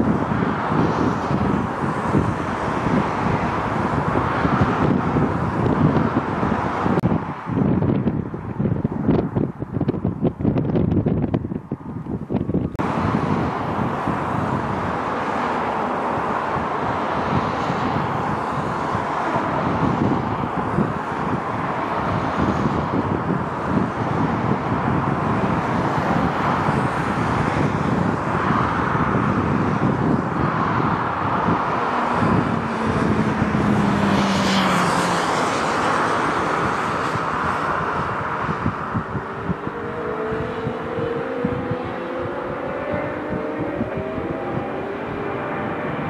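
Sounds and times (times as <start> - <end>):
jet engines roaring: 0.0 - 8.8, 12.7 - 46.0
high engine whine: 0.0 - 46.0.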